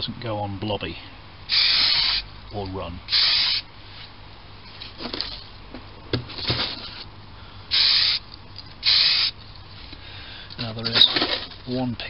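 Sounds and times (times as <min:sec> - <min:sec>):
aerosol spray can hiss: 0:07.7 - 0:08.2, 0:08.8 - 0:09.3.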